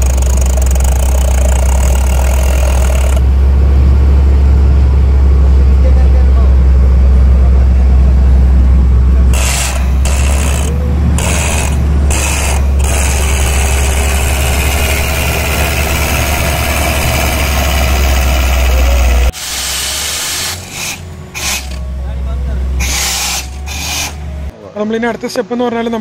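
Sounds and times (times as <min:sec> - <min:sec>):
drilling rig engine drone: 0:00.0 - 0:24.5
compressed air hissing: 0:19.3 - 0:21.8, 0:22.8 - 0:24.3.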